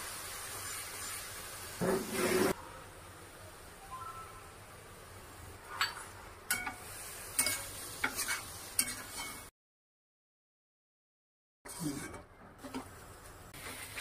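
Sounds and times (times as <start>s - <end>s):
spatula scraping a metal pan: 1.8s - 2.6s.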